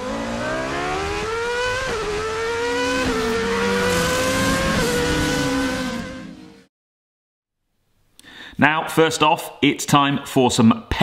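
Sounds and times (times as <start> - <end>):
car engine accelerating through gears: 0.0 - 6.7.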